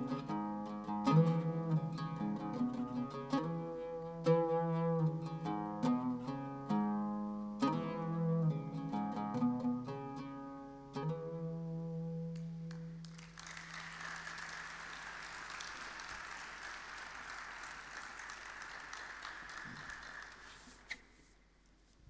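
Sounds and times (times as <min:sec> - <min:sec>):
oud plucked notes: 0:00.0 - 0:13.0
audience applause: 0:12.7 - 0:20.9.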